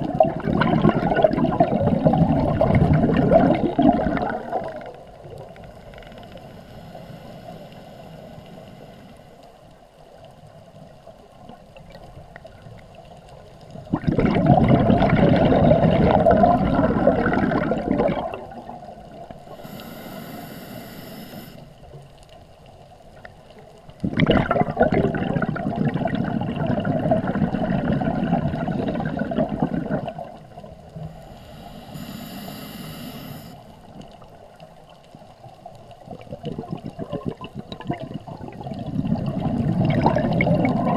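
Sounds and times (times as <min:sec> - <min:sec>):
bubbles gurgling underwater: 0:00.0 - 0:06.0, 0:11.4 - 0:19.8, 0:23.9 - 0:31.0, 0:33.9 - 0:40.9
regulator inhalation hiss: 0:06.2 - 0:09.4, 0:19.5 - 0:21.9, 0:31.0 - 0:33.9.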